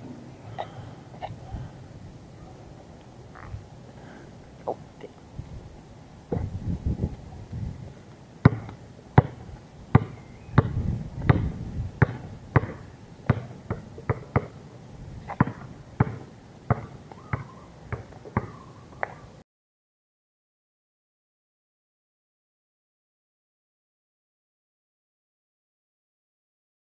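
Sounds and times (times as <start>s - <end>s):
basketball bouncing on asphalt: 6.3s - 6.6s, 8.4s - 14.6s, 15.2s - 19.2s.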